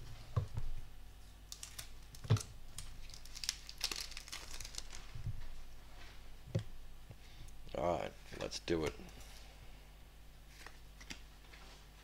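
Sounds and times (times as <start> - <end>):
foil wrapper crinkling: 1.5 - 5.2.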